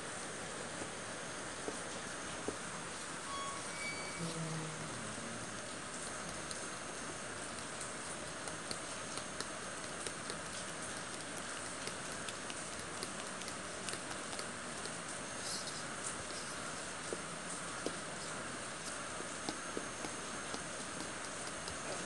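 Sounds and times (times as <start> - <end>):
utensil clicking against bowl: 7.5 - 15.0.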